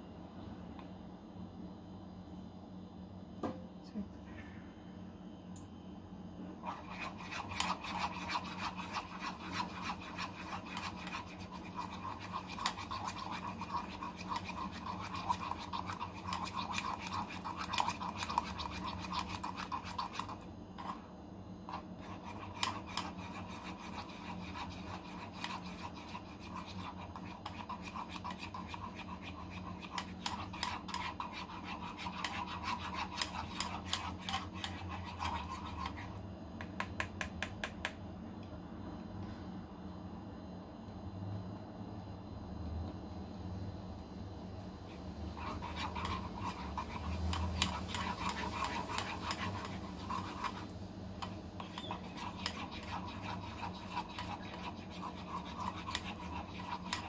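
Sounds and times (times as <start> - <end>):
steady low hum: 0.0 - 57.0
spoon scraping saucepan: 6.6 - 21.0, 21.7 - 36.1, 45.4 - 50.6, 51.2 - 57.0.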